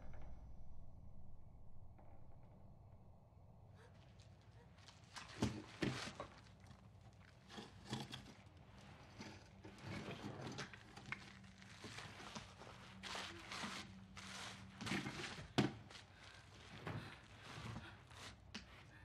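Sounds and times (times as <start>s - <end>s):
rubble crunching and scraping: 4.0s - 19.0s.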